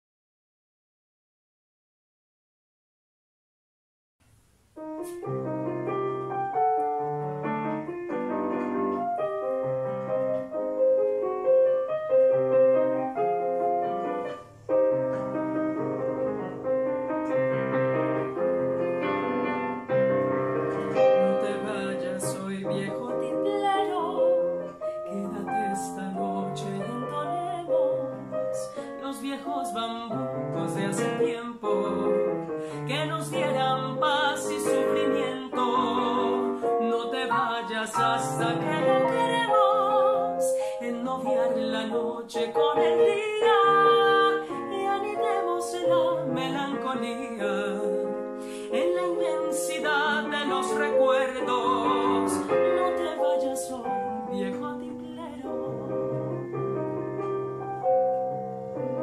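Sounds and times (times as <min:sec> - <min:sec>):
digital piano playing: 0:04.8 - 0:59.0
woman singing: 0:20.7 - 0:56.6.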